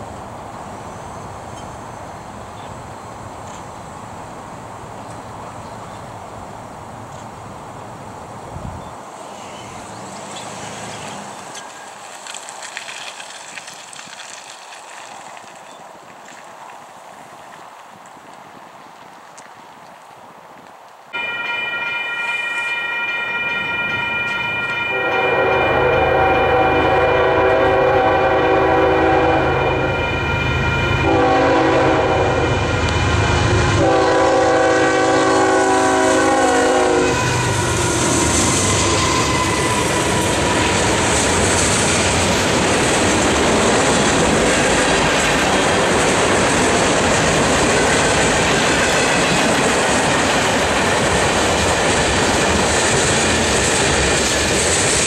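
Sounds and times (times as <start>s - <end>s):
train horn blasts: 21.2s - 38.0s
train wheels clattering on rails: 36.4s - 55.0s.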